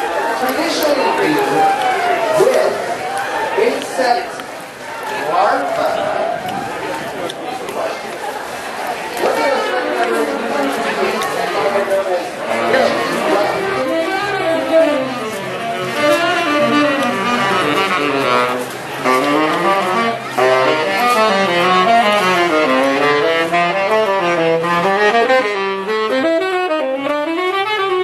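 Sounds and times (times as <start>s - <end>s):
jazz saxophone melody: 9.2s - 28.0s.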